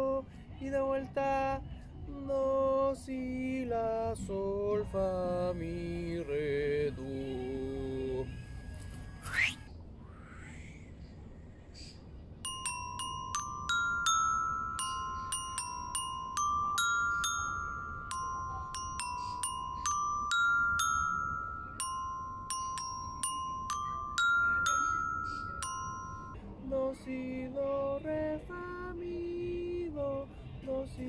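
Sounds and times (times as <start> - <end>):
glockenspiel melody: 12.4 - 26.8.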